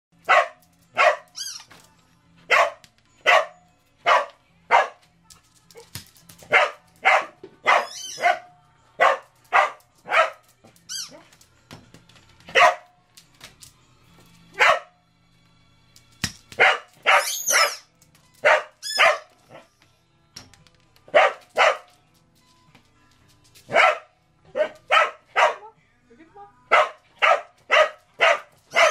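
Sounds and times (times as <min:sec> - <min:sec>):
dog barking: 0:00.3 - 0:01.3, 0:02.5 - 0:05.0, 0:06.5 - 0:10.4, 0:12.5 - 0:12.9, 0:14.6 - 0:15.0, 0:16.6 - 0:17.8, 0:18.4 - 0:19.7, 0:21.1 - 0:21.9, 0:23.7 - 0:25.7, 0:26.7 - 0:28.9
dog squealing: 0:07.8 - 0:08.3, 0:17.1 - 0:17.9.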